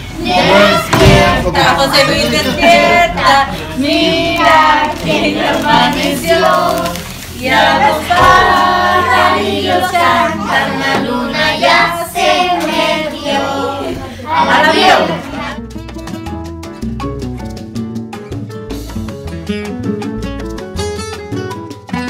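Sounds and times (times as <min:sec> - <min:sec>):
women and children singing: 0:00.0 - 0:15.6.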